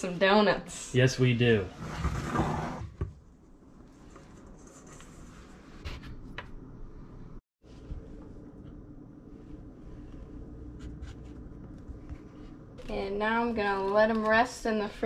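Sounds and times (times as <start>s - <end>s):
low room hum: 3.2s - 15.0s.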